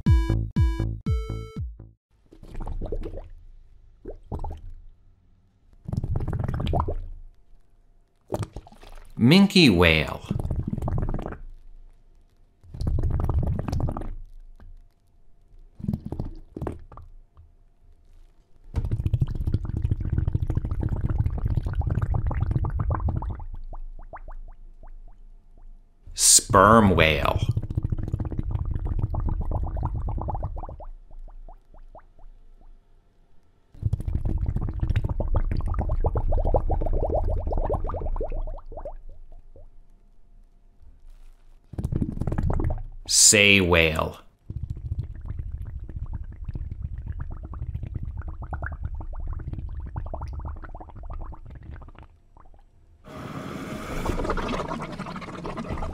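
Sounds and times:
whale gurgling pitched sweeps: 53.2s - 55.9s.

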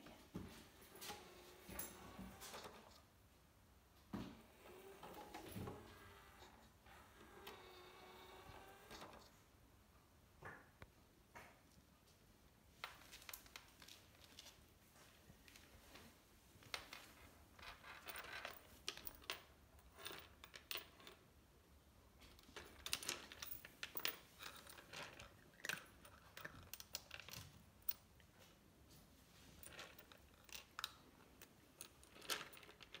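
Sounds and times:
cat crunching dry kibble: 24.4s - 27.2s.

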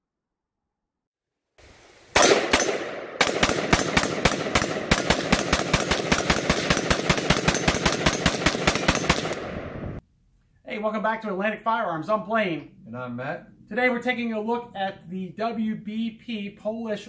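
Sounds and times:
rifle shots: 2.1s - 10.0s.

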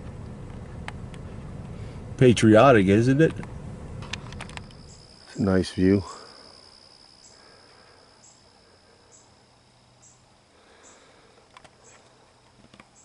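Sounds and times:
small clicks: 3.4s - 4.8s, 11.5s - 13.0s
high-pitched insect trill: 4.2s - 13.0s
soft chirp: 4.5s - 11.2s.

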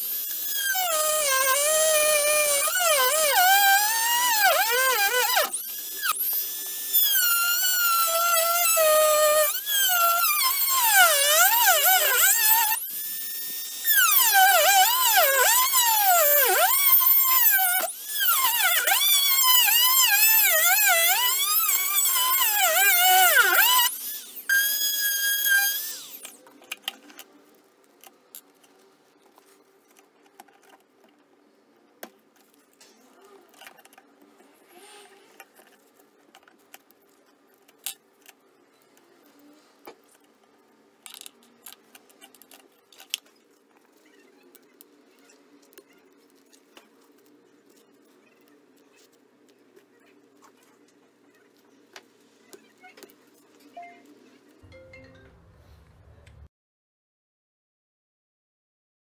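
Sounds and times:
rotary tool cutting metal: 0.0s - 26.4s.

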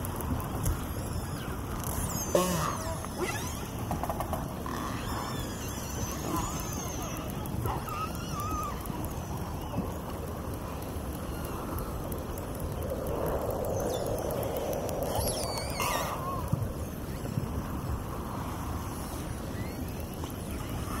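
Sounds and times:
steady rushing noise: 8.5s - 21.0s.

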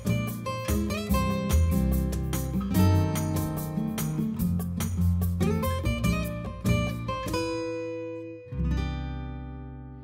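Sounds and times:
acoustic guitar strummed chords: 0.0s - 10.0s.

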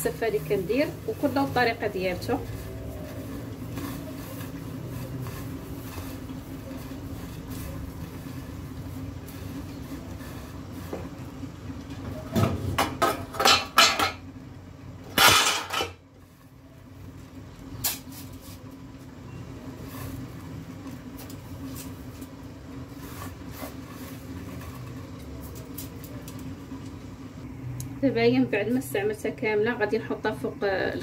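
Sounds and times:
dry noodles rustling: 0.0s - 11.4s
steady low hum: 0.0s - 31.0s
metal pot and plate clattering: 12.8s - 14.2s, 15.1s - 16.0s.

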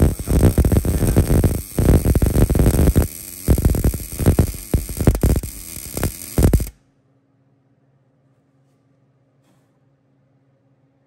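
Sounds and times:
welding arc crackling: 0.0s - 6.8s.

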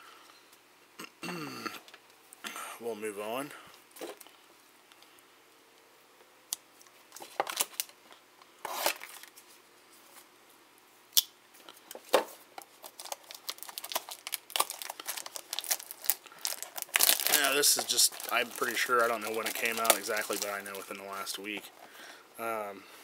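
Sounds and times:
plastic wrapper crinkling: 7.1s - 8.0s, 12.6s - 21.9s.

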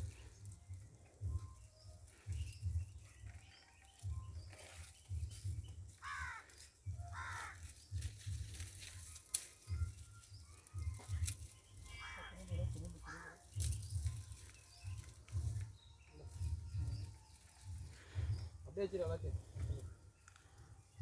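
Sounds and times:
crow cawing: 6.0s - 7.7s, 12.0s - 13.6s.

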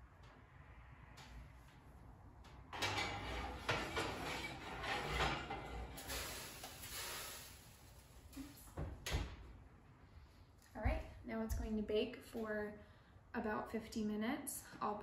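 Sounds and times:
oven door closing: 2.7s - 6.5s
metal oven racks and pans clanking: 2.7s - 7.5s.

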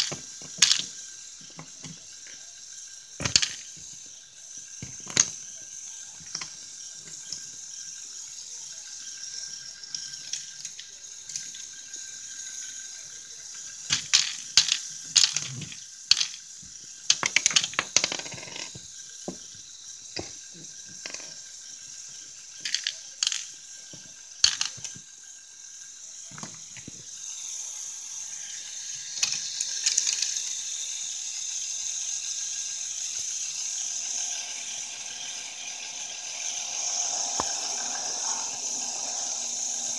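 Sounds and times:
plastic clicks and rattles: 22.6s - 25.0s
high motor whir: 25.0s - 39.9s.

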